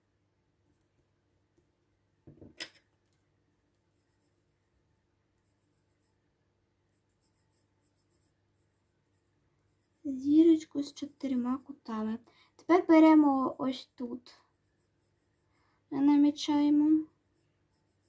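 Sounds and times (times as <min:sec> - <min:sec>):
knock: 0:02.2 - 0:02.7
pencil scratching on paper: 0:03.8 - 0:04.6, 0:05.2 - 0:18.0.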